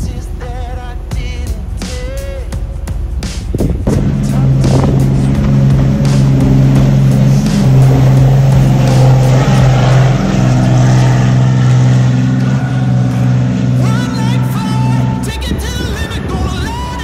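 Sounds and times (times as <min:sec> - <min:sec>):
background music with bass line: 0:00.0 - 0:17.0
boat engine running fast: 0:00.0 - 0:17.0
rushing spray: 0:03.3 - 0:17.0.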